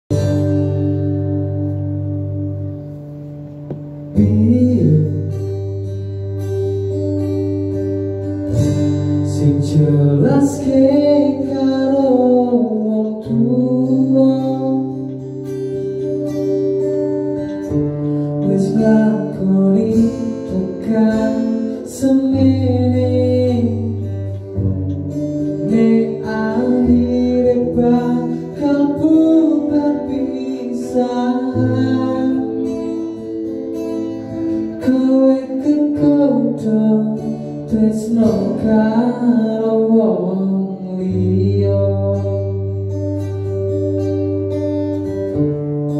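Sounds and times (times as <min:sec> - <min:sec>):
acoustic guitar: 0:00.0 - 0:45.9
man singing: 0:03.8 - 0:06.0, 0:08.8 - 0:15.5, 0:18.2 - 0:43.3.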